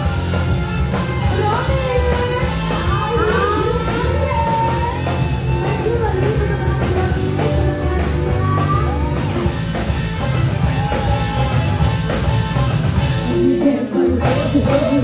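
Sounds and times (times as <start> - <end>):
amplified backing music: 0.0 - 15.0
woman singing into microphone: 1.0 - 9.2, 13.3 - 15.0.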